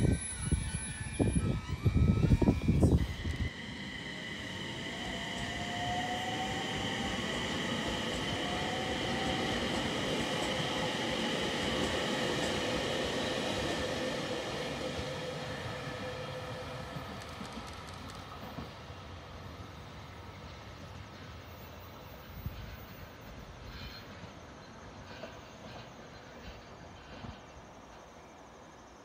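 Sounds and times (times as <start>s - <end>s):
electric train motor whine: 0.0s - 18.7s
wheels rumbling on rail: 0.0s - 28.9s.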